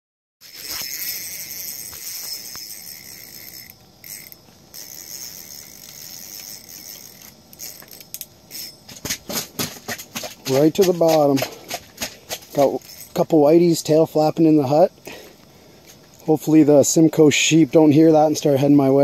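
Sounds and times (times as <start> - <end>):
fishing line whirring off reel: 0.4 - 9.2.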